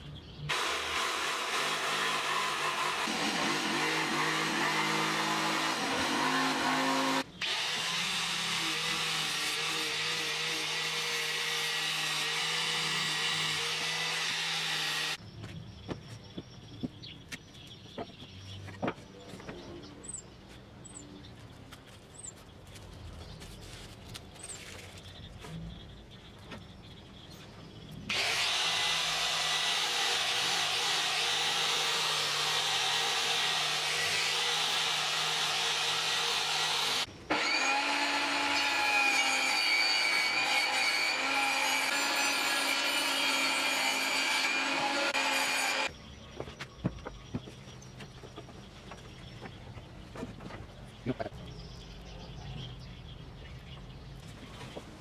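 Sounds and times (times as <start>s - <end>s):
angle grinder sanding plywood: 0.5s - 15.2s, 28.1s - 45.9s
loud power tool running: 0.5s - 15.2s, 28.1s - 45.9s
table saw running: 0.5s - 15.2s, 28.1s - 45.9s.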